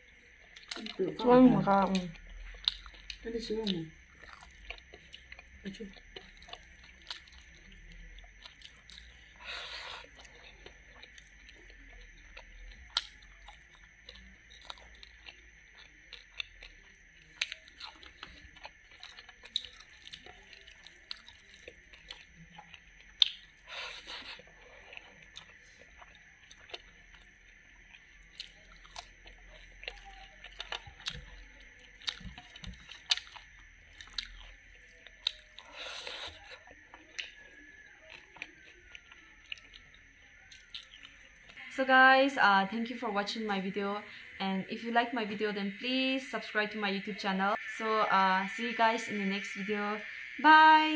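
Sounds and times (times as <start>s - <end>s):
food crunching: 0.0s - 41.6s
person chewing: 0.0s - 41.6s
wet mouth clicks and smacks: 23.2s - 23.4s.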